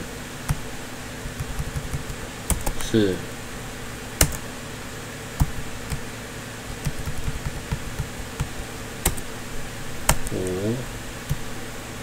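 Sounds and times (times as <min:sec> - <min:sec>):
keyboard keystrokes: 0:01.3 - 0:03.0, 0:04.2 - 0:04.4, 0:05.4 - 0:06.0, 0:06.7 - 0:09.3, 0:10.0 - 0:10.4.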